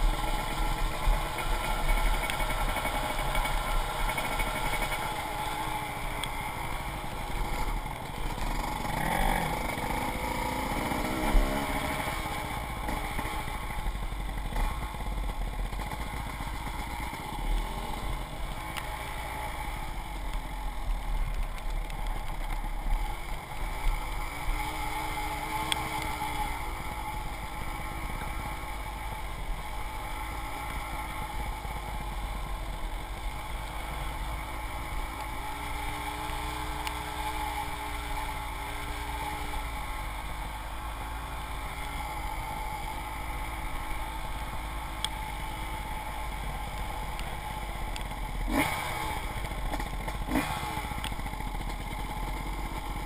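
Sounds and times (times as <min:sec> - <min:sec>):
dirt bike engine revving: 0:00.0 - 0:13.8, 0:45.2 - 0:53.0.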